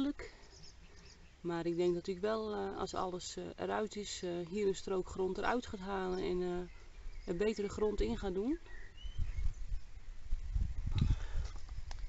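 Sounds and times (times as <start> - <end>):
microphone rumble: 9.0 - 12.0.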